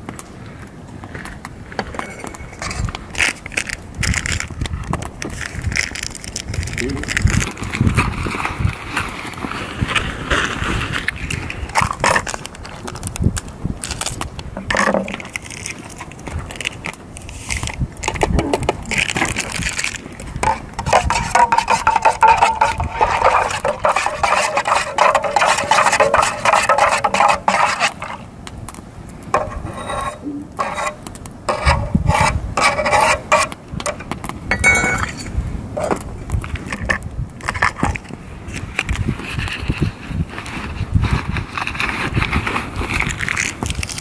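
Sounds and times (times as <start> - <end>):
metal utensils scraping in pot: 18.9 - 28.3, 29.4 - 36.0.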